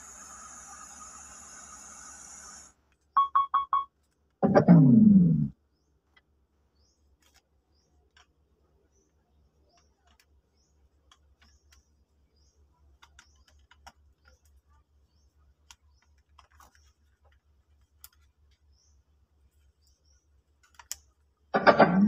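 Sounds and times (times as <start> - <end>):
loud sound from speaker: 4.4 - 5.5.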